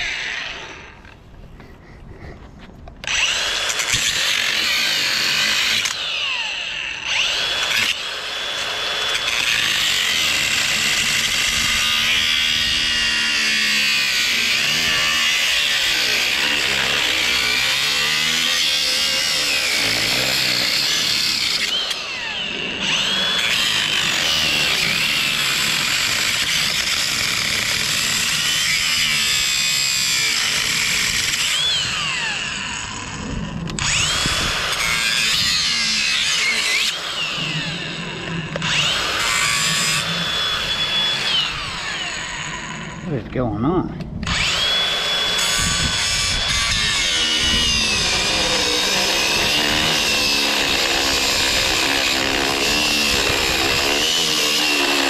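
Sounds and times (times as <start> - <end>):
angle grinder cutting steel: 0.0 - 1.2, 2.9 - 43.4, 44.2 - 55.0.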